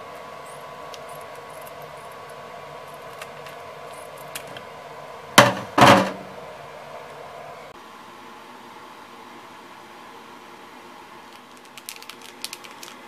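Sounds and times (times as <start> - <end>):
background hum: 0.0 - 13.0
plastic sachet crackling: 11.3 - 13.0.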